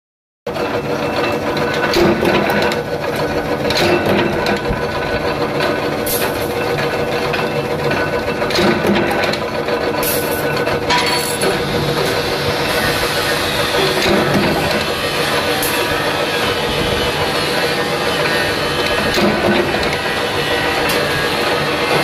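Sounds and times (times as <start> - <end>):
power press humming: 11.1 - 22.0.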